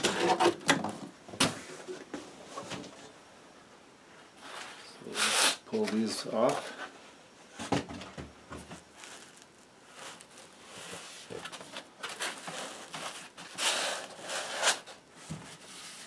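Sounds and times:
foam scraping against cardboard: 0:04.4 - 0:05.6, 0:09.0 - 0:16.0.

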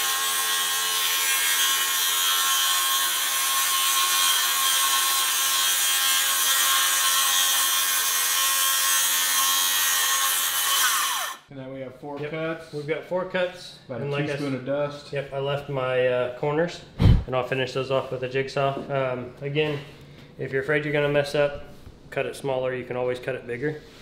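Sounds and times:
circular saw cutting: 0:00.0 - 0:11.4.

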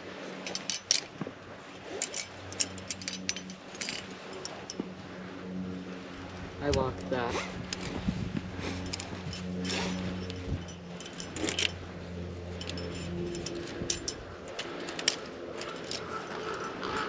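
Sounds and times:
low steady hum: 0:00.0 - 0:17.0
metal climbing gear clinking: 0:00.1 - 0:17.0.

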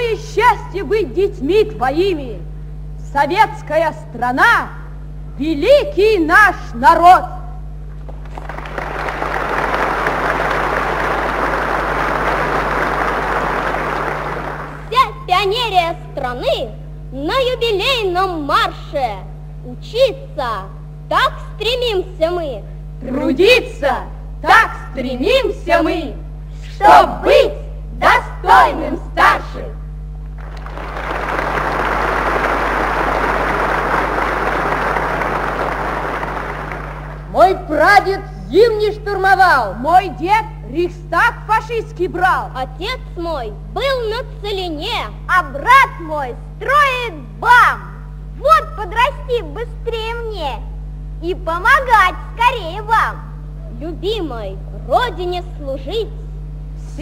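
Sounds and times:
low hum: 0:00.0 - 0:57.0
audience applauding: 0:08.1 - 0:14.9, 0:30.4 - 0:37.3.

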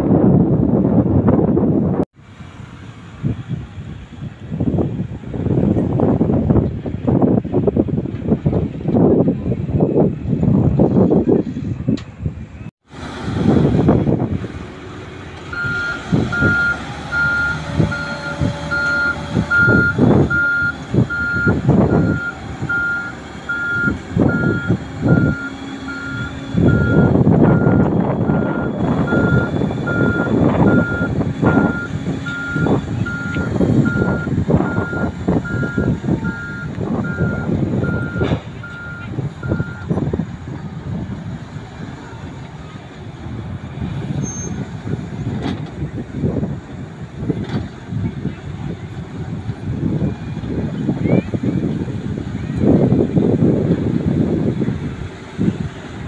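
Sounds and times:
diesel engine running: 0:00.0 - 0:56.0
back-up alarm beeping: 0:15.5 - 0:39.9.

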